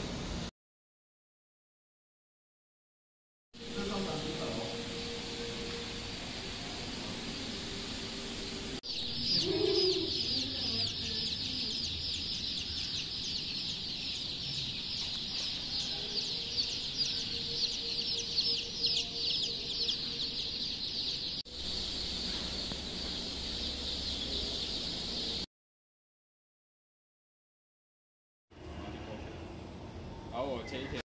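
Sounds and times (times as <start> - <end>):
steady hiss: 3.6 - 10.3, 21.5 - 23.8
chicks peeping: 8.8 - 25.5.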